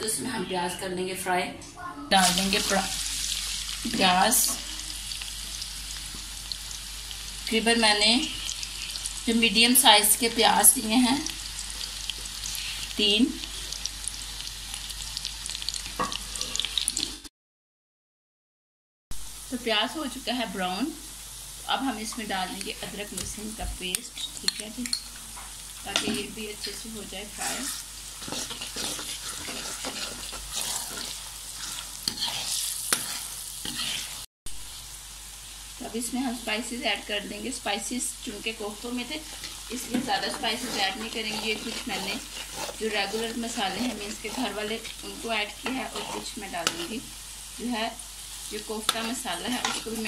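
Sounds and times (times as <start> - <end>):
onions sizzling in hot oil: 2.1 - 17.3, 19.1 - 50.0
metal spoon stirring: 27.4 - 34.3, 39.2 - 47.0, 48.8 - 50.0.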